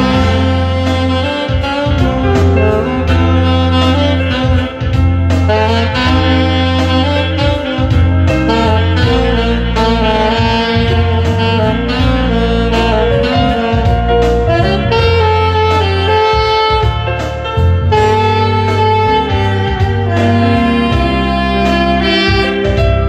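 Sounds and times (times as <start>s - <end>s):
backing track with bass and drums: 0.0s - 23.0s
saxophone melody: 0.0s - 23.0s.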